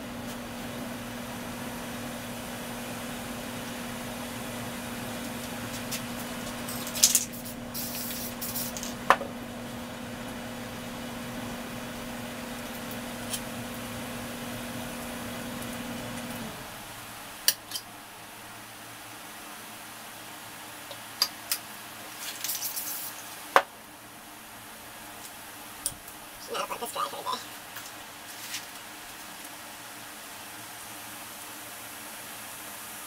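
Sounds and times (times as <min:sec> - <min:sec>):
steady electric hum: 0:00.0 - 0:33.0
aerosol spray paint hissing: 0:07.3 - 0:08.9.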